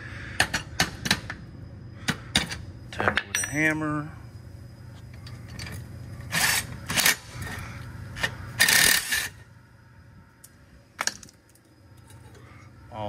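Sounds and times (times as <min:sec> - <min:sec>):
cordless wrench running: 0:08.6 - 0:09.3.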